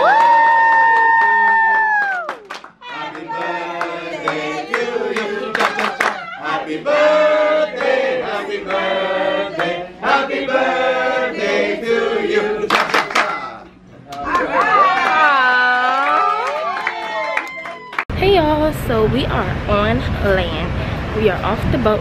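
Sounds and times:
hand clapping: 0:00.2 - 0:02.8, 0:05.2 - 0:06.2, 0:12.7 - 0:13.4
group of people singing: 0:02.8 - 0:13.6.

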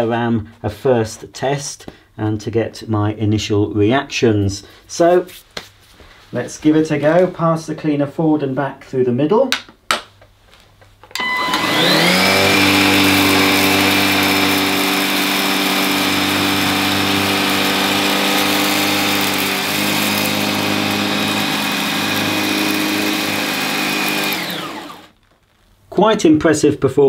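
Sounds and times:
vacuum cleaner running: 0:11.2 - 0:25.2.

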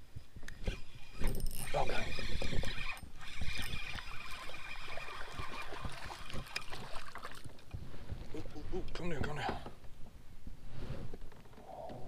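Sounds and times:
water lapping against hull: 0:01.7 - 0:09.6.

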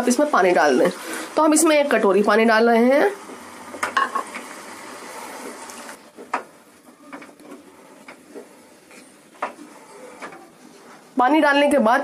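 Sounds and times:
steady hiss: 0:03.2 - 0:11.2.

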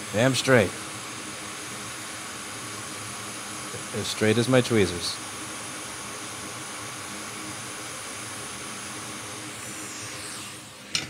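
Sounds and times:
hot air blower hissing: 0:00.0 - 0:11.0.

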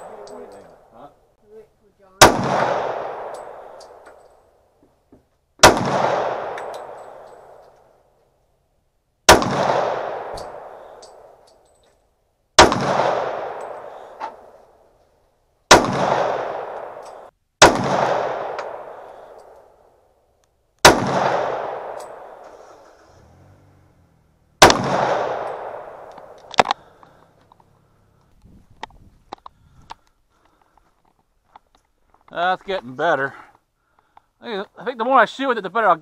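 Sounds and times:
pistol shots echoing: 0:02.2 - 0:04.1, 0:05.6 - 0:07.6, 0:09.3 - 0:11.4, 0:12.6 - 0:14.6, 0:15.7 - 0:19.8, 0:20.8 - 0:22.6, 0:24.6 - 0:27.3
light sharp crack: 0:24.6 - 0:32.4.

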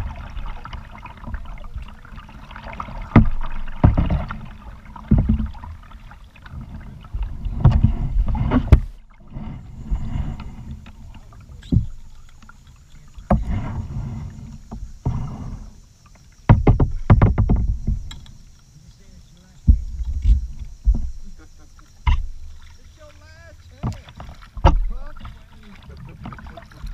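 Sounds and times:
paddle splashing in water: 0:00.0 - 0:26.9
low microphone rumble: 0:19.6 - 0:22.6.

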